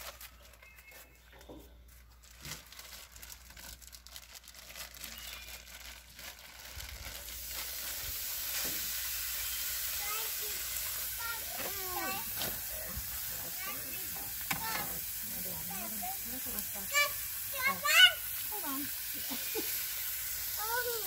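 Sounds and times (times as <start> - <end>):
plastic bag crinkling: 0.0 - 21.0
meat sizzling on griddle: 5.1 - 21.0.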